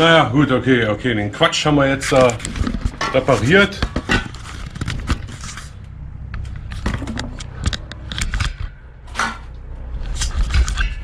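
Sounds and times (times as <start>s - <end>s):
steady low hum: 0.0s - 11.0s
camera handling rustling: 2.1s - 3.2s, 3.9s - 5.8s.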